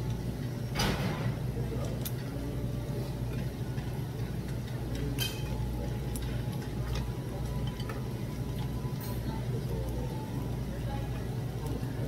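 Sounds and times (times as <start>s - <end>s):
room machinery hum: 0.0s - 12.0s
utensil clinking on tableware: 5.1s - 5.6s.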